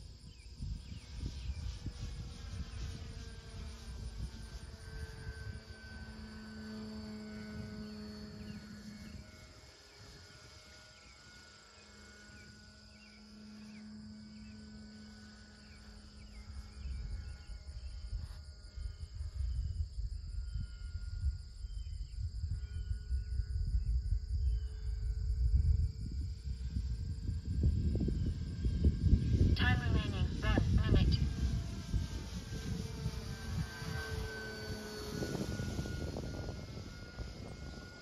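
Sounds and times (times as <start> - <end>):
wind buffeting microphone: 0.0 - 6.2, 16.4 - 38.0
model plane motor and propeller: 0.0 - 38.0.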